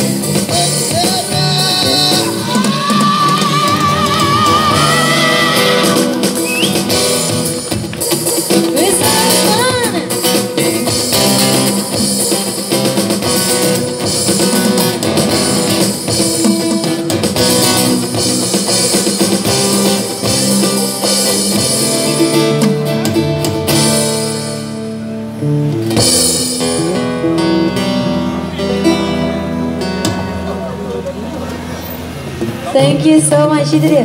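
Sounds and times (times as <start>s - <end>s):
steady beat: 0.0s - 24.8s
keyboard chords: 0.0s - 33.7s
acoustic guitar strumming: 0.0s - 33.9s.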